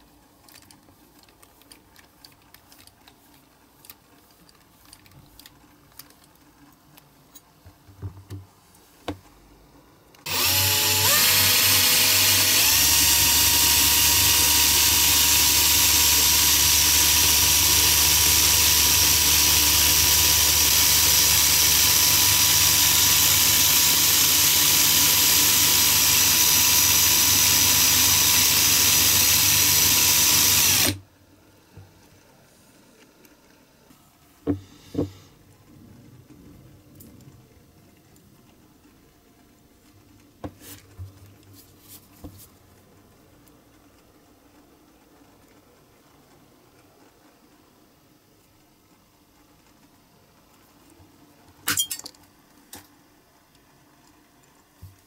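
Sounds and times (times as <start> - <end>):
cordless drill whining: 10.2 - 31.0.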